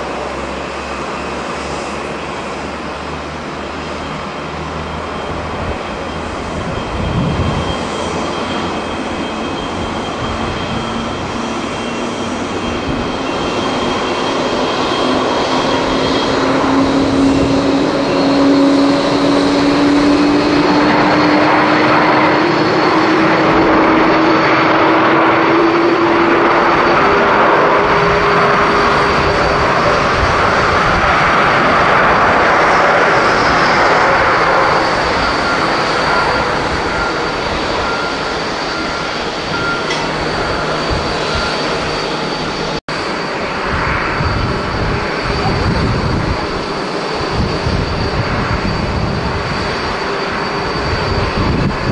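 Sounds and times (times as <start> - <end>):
jet engines landing: 0.0 - 51.9
wind rumble on microphone: 5.3 - 8.2, 43.6 - 51.9.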